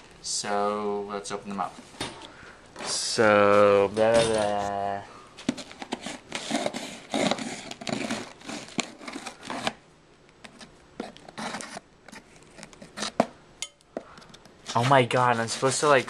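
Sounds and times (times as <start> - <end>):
knife cutting packing tape: 5.6 - 9.8, 10.5 - 13.2.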